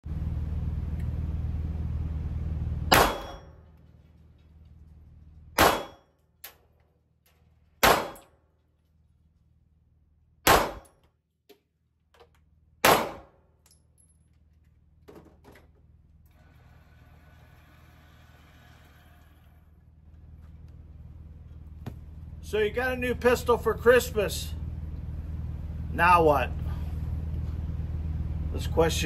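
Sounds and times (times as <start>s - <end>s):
steady low hum: 0.0s - 29.0s
handgun shots indoors: 2.9s - 3.7s, 5.6s - 6.6s, 7.8s - 8.5s, 10.4s - 11.1s, 12.8s - 13.8s.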